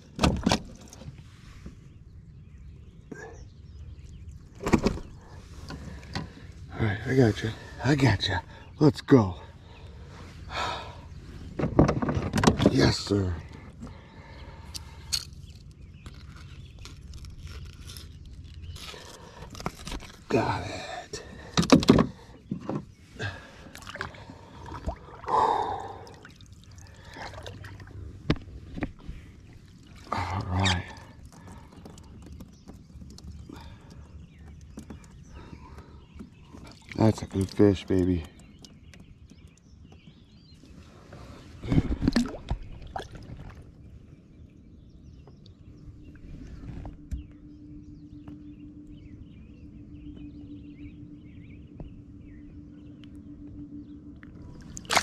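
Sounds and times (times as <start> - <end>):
water splashing: 23.7 - 28.0, 41.7 - 43.7, 54.6 - 55.0
water dripping: 26.0 - 27.9.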